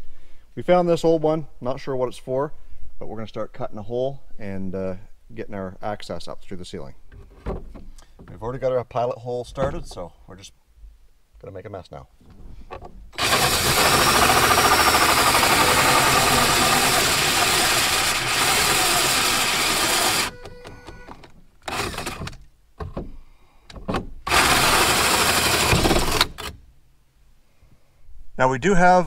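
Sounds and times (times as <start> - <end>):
drill hole saw cutting plastic: 13.2 - 22.4, 24.3 - 26.5.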